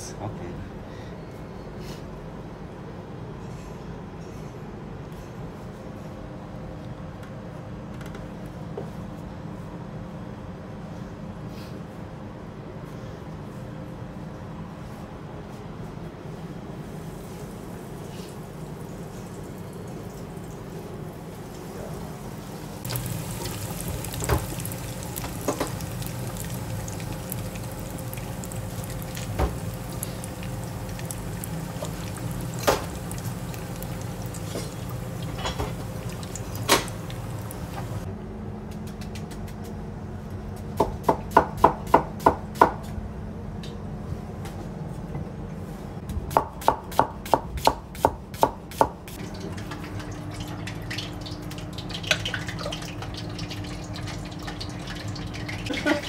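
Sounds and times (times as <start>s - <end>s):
meat deep-frying in oil: 16.8s - 38.1s, 49.1s - 56.0s.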